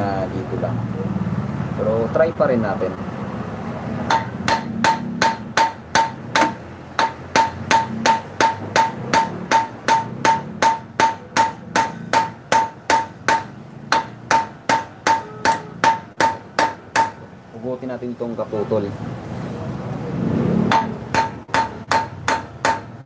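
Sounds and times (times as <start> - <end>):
hammer striking metal hub: 4.0 - 17.4, 20.6 - 23.0.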